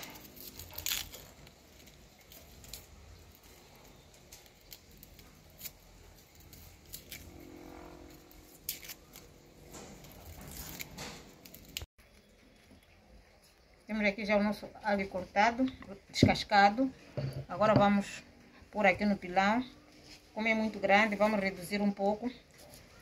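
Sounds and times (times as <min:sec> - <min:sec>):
papery garlic skin crackling: 0:00.0 - 0:13.6.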